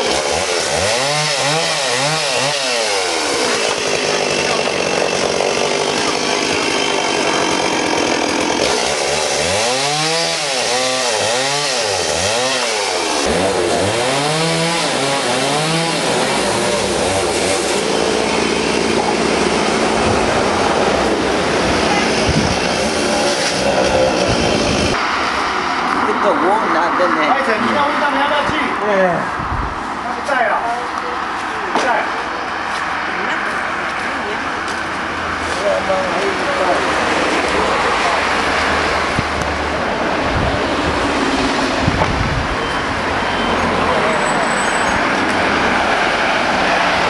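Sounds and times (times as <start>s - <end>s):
chainsaw cutting into log: 0.0s - 25.0s.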